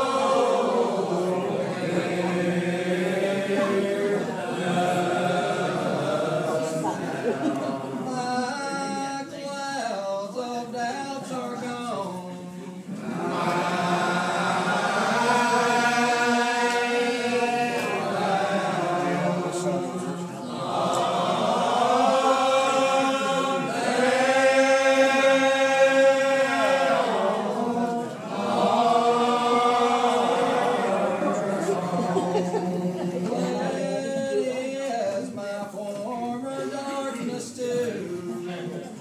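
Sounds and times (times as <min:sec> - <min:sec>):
congregation singing a hymn: 0:00.0 - 0:39.0.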